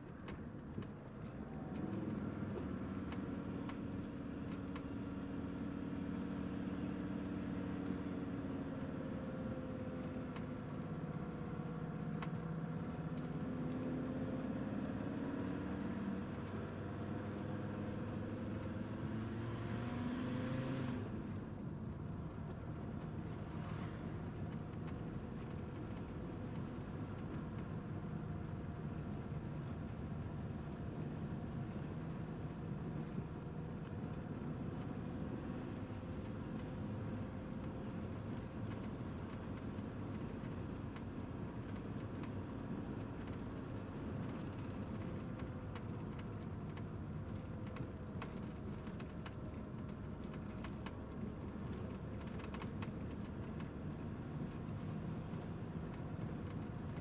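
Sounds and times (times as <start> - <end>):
vehicle engine and road noise: 0.0 - 57.0
light rattles and clicks: 21.6 - 57.0.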